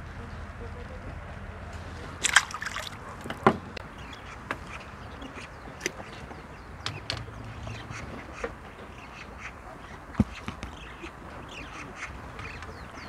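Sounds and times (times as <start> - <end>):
fish splashing in landing net: 2.2 - 3.3
sharp knocks: 6.8 - 7.4.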